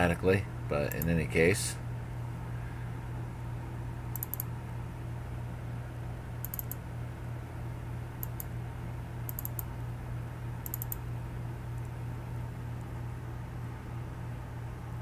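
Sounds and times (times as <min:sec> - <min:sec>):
steady low hum: 0:00.0 - 0:15.0
computer mouse button clicks: 0:04.1 - 0:04.5, 0:06.4 - 0:06.8, 0:09.3 - 0:09.7, 0:10.6 - 0:11.0.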